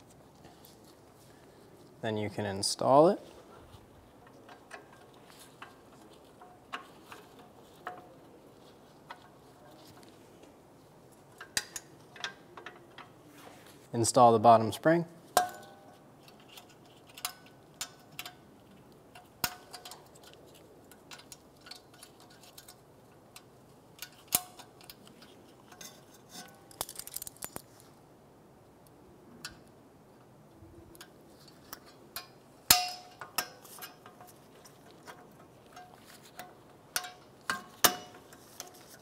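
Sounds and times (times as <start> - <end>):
metallic clicks and clinks: 19.1 - 27.9.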